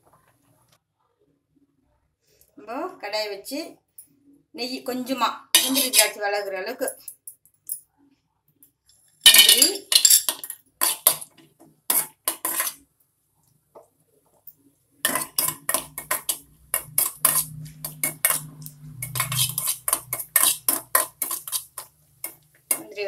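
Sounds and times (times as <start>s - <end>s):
spoon scraping metal pan: 5.6s - 6.2s, 9.3s - 12.8s, 15.0s - 23.0s
nuts dropping into metal pan: 9.3s - 11.3s.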